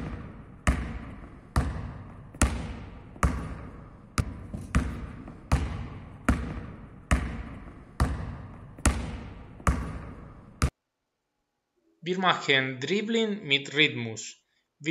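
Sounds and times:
basketball bouncing on hall floor: 0.0s - 10.8s.

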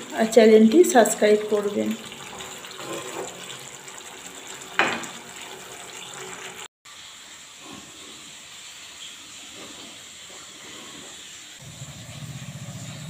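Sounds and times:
curry simmering hiss: 6.9s - 13.0s.

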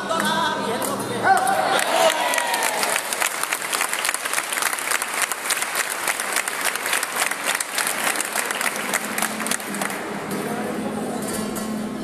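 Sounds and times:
crowd applauding: 1.3s - 10.2s.

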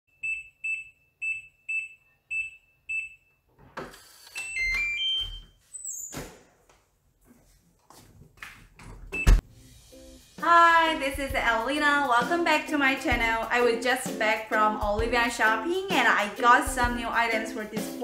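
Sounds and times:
keypad beeps: 4.4s - 5.4s.

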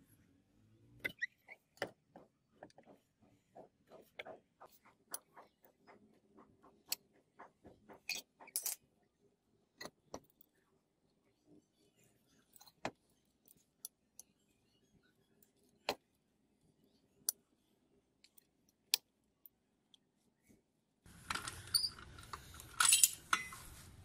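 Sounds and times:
metal scraping with clinks: 21.3s - 23.8s.

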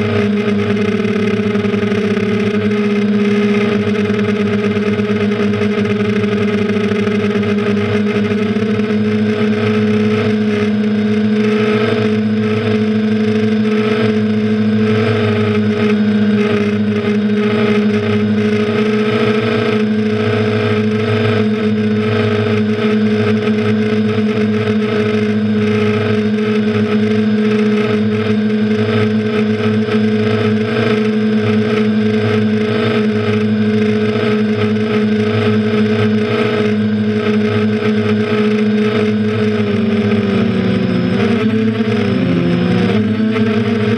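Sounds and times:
quadcopter motors and propellers humming: 0.0s - 43.9s.

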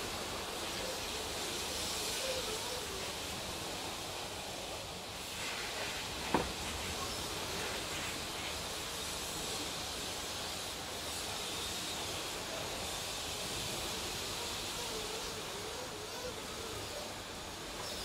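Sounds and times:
car wash brushes and water spray: 3.5s - 13.9s.

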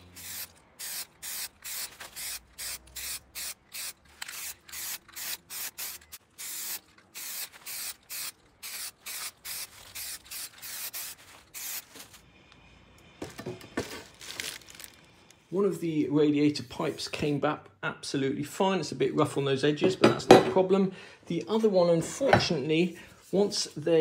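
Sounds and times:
spray can bursts: 0.0s - 12.0s.

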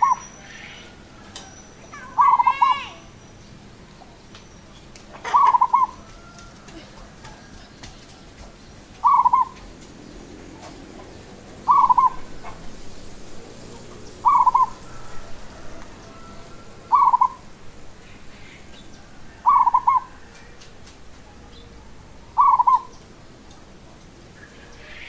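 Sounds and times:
dove cooing: 0.0s - 2.9s, 5.2s - 7.6s, 9.0s - 17.6s, 18.2s - 23.0s.

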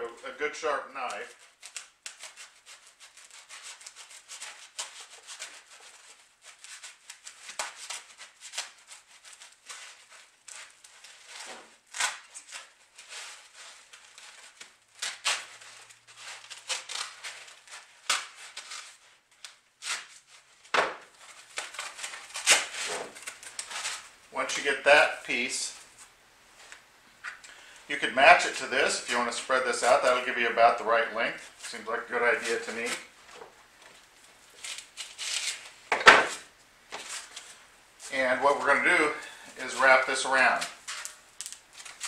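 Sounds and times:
knife sawing through foam: 2.1s - 19.0s.

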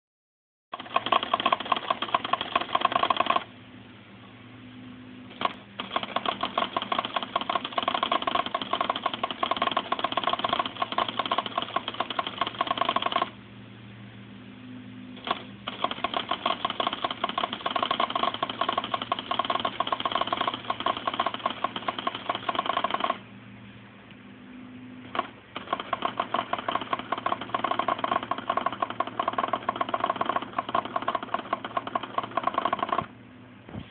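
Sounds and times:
pen printer ticking buzz: 0.7s - 3.5s, 5.3s - 13.4s, 15.2s - 23.2s, 25.0s - 33.1s
low hum: 3.4s - 6.8s, 11.6s - 16.4s, 23.1s - 29.6s.

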